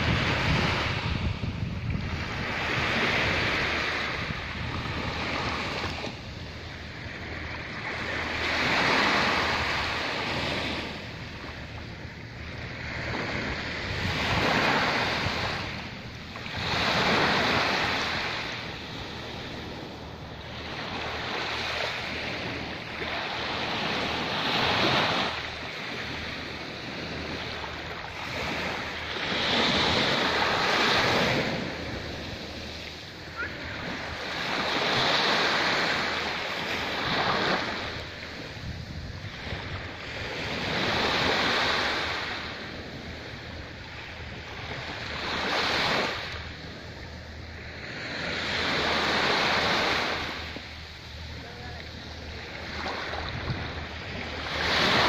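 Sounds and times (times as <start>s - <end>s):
small waves on a sandy beach: 0.0s - 55.0s.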